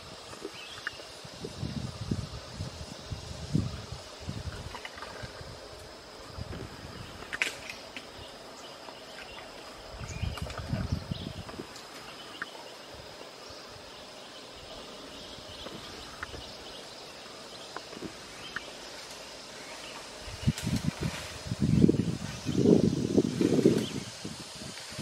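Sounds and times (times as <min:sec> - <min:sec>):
bamboo stems snapping and rustling: 0:07.1 - 0:08.2, 0:10.2 - 0:12.6, 0:17.7 - 0:21.6.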